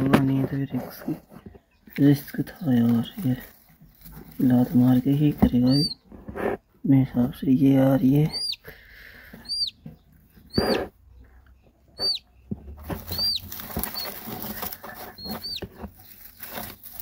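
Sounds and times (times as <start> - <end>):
chick peeping: 0.2 - 17.0
rustle in straw: 1.9 - 6.0, 12.8 - 17.0.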